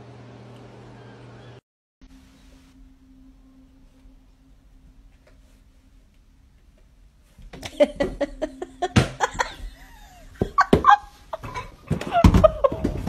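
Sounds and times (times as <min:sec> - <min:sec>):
person laughing: 0:07.6 - 0:13.0.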